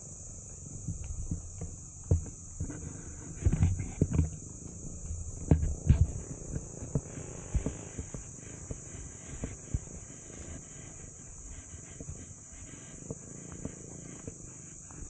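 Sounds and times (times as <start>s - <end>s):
insects droning: 0.0s - 15.0s
footsteps and camera handling thumps: 0.8s - 10.1s.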